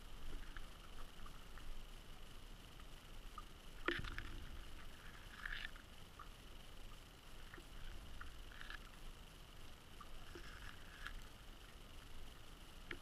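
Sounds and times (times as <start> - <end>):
low underwater rumble: 0.0 - 13.0
faint clicks and knocks: 2.7 - 9.1, 9.9 - 13.0.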